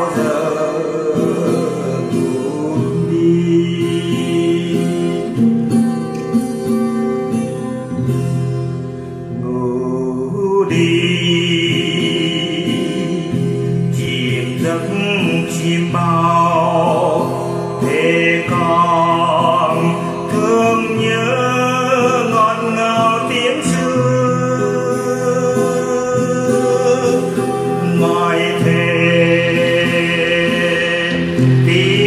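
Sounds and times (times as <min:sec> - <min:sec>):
person singing: 0:00.0 - 0:05.8, 0:09.3 - 0:32.0
acoustic guitar: 0:00.0 - 0:32.0.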